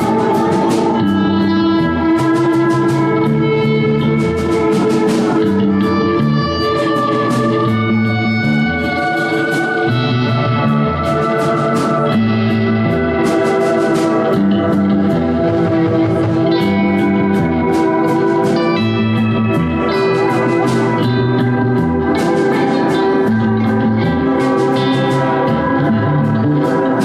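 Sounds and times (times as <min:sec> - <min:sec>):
drums and cymbals: 0:00.0 - 0:27.0
electric guitar through amplifier: 0:00.0 - 0:27.0.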